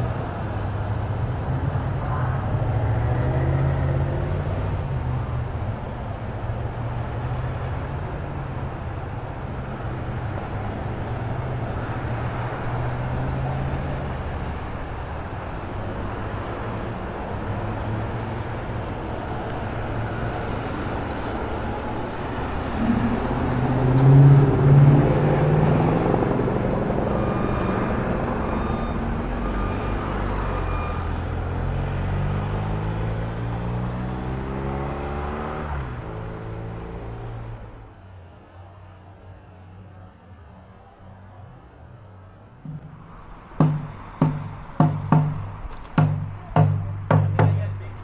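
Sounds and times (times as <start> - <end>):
vehicles driving past: 0.0 - 48.0.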